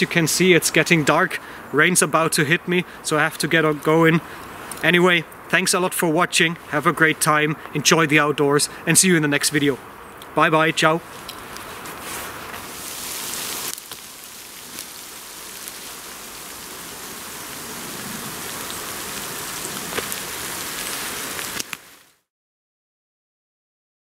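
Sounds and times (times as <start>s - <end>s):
steady rain falling: 10.7s - 22.3s.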